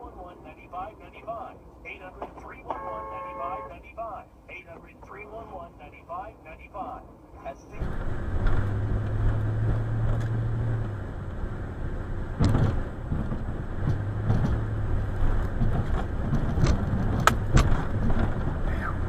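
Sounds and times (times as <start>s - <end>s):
knocks and rattles: 12.3s - 18.6s.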